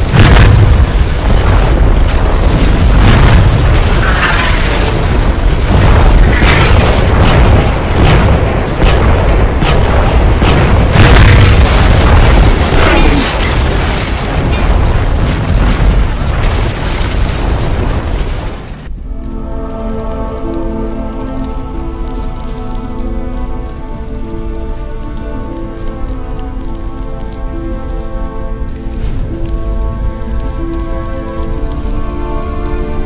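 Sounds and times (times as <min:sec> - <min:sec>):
booming explosions and cannon shots: 0:00.0 - 0:19.1
music: 0:18.8 - 0:33.0.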